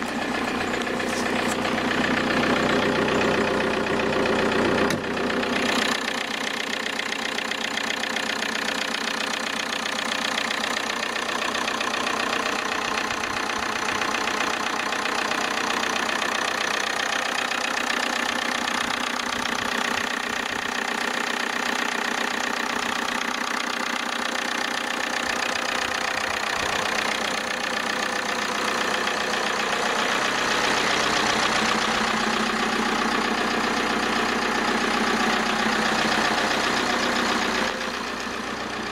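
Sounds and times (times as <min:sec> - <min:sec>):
diesel engine idling: 0:00.0 - 0:38.9.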